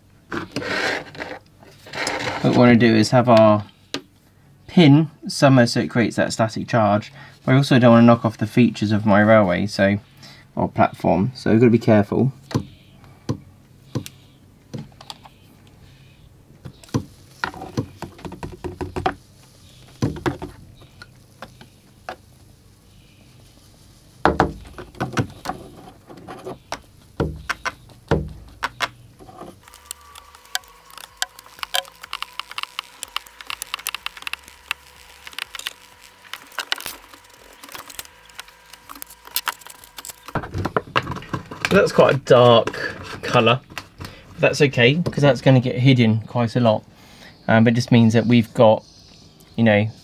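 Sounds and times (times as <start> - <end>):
applicator knocks and rattles: 16.6 - 19.2, 19.9 - 22.2, 24.2 - 29.6
high whine with rapid ticking: 24.6 - 40.8.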